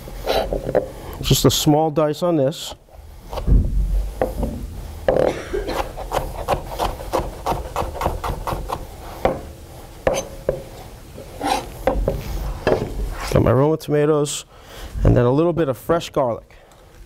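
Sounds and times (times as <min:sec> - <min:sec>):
knife chopping on cutting board: 0:05.7 - 0:09.5, 0:10.1 - 0:10.7.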